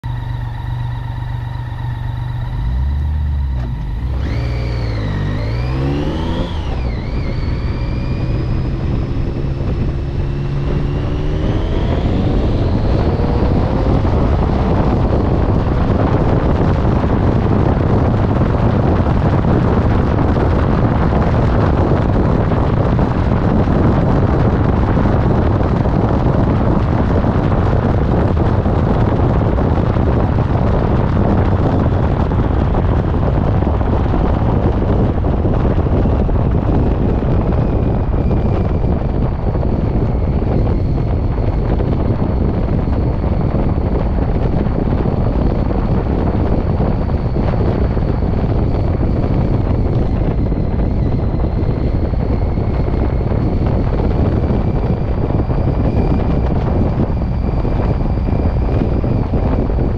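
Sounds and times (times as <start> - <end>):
motorcycle engine accelerating: 0.0 - 59.9
wind rushing on microphone: 0.0 - 59.9.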